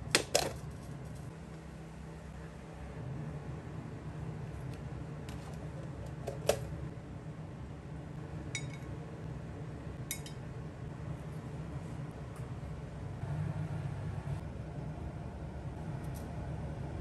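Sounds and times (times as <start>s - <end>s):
low hum: 6.8s - 17.0s.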